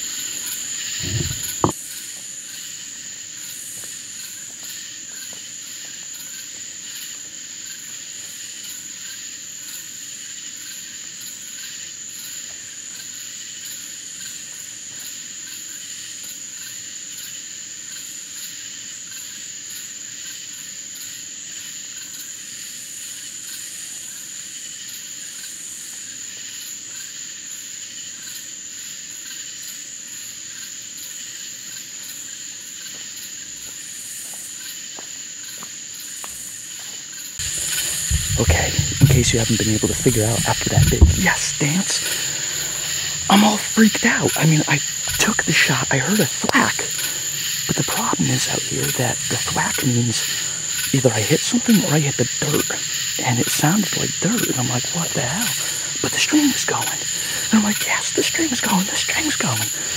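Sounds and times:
crickets trilling: 0.0 - 59.9
short low thump: 1.0 - 1.8, 37.4 - 43.4.

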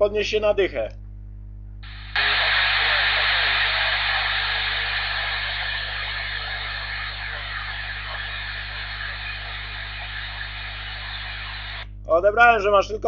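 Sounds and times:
steady hum: 1.3 - 12.1
radio static hiss: 1.8 - 11.8.

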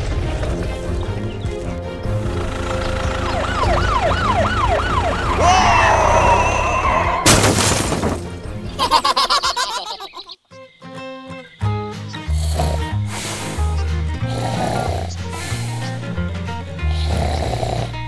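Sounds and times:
background music: 0.0 - 18.0
police siren wailing: 2.2 - 7.3
burst of hiss: 12.5 - 13.8, 14.4 - 16.0.

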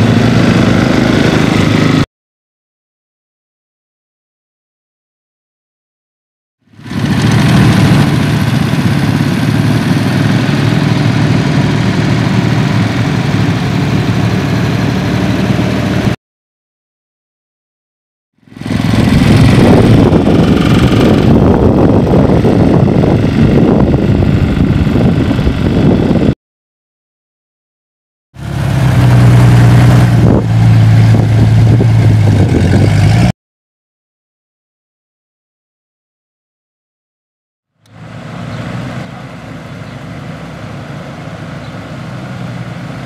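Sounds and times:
small engine running: 0.0 - 2.0, 6.6 - 16.2, 18.4 - 26.4, 37.9 - 43.0
gusty wind on microphone: 18.5 - 26.4, 28.8 - 33.3.

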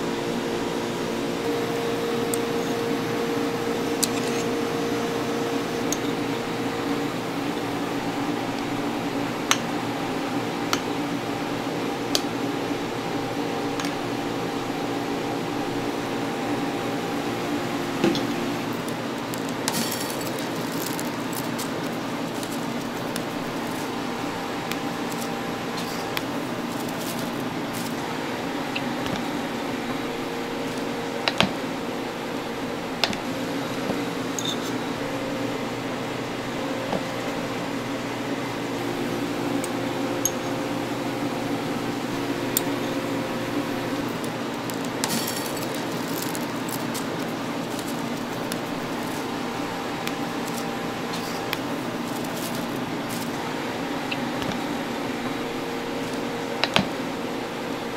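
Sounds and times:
kitchen appliances humming: 0.0 - 57.9
utensils clicking and tapping: 1.4 - 11.4, 12.0 - 31.7, 33.0 - 34.9, 39.5 - 40.8, 42.0 - 57.0.

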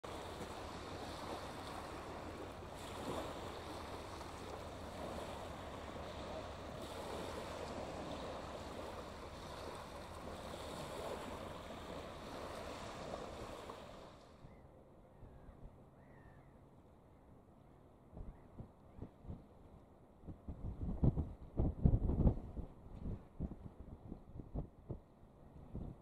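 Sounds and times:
waves washing over pebbles: 0.0 - 14.2.

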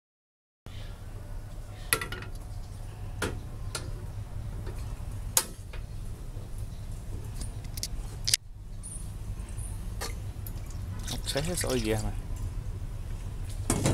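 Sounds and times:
steady low hum: 0.7 - 13.9.

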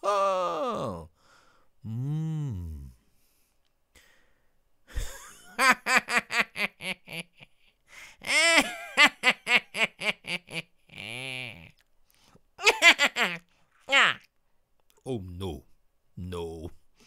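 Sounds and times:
person giggling: 4.9 - 11.8, 12.6 - 14.2.

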